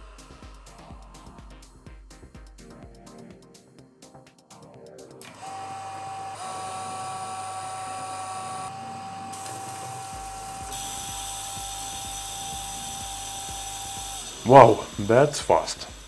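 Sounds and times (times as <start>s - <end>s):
motor hum and high whine: 5.2s - 16.0s.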